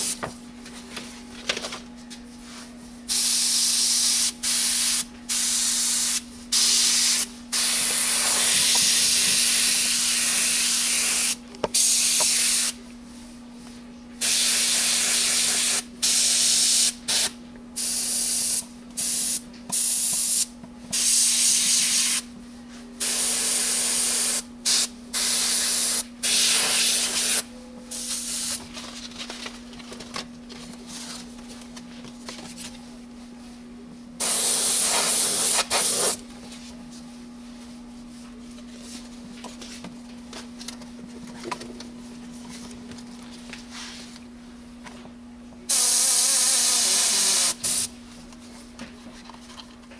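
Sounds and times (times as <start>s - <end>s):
airbrush spraying hiss: 34.2s - 36.2s, 45.7s - 47.9s.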